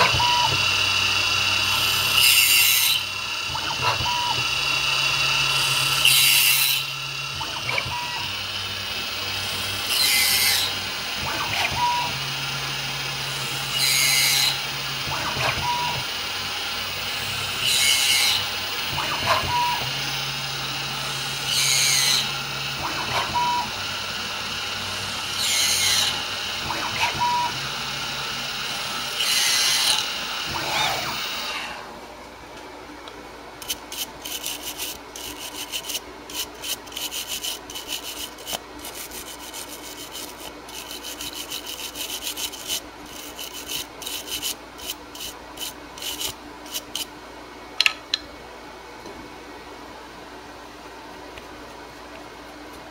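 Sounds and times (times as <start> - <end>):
milling spindle whine: 0.0 - 31.8
motor hum changing pitch: 0.0 - 32.0
cutter cutting plastic: 33.6 - 47.1.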